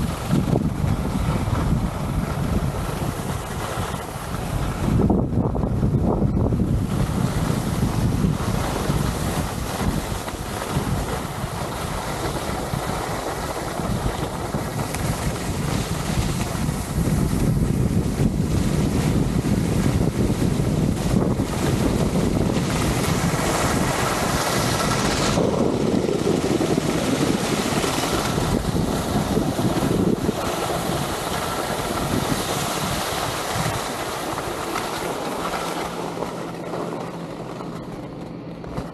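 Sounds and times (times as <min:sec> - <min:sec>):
wind rushing over microphone: 0:00.0 - 0:38.9
skis hissing over snow: 0:02.0 - 0:04.9, 0:06.8 - 0:25.6, 0:26.2 - 0:36.9.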